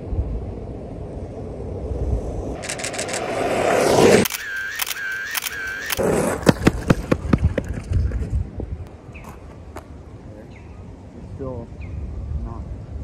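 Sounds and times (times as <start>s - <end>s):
rush of noise: 0.0s - 7.8s
camera shutter clicks: 2.6s - 3.4s, 4.2s - 6.0s.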